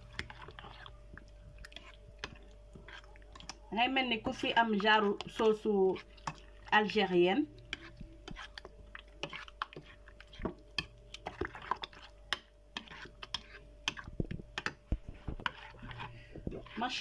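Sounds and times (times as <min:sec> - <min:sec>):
spoon stirring thick sauce: 0:00.0 - 0:17.0.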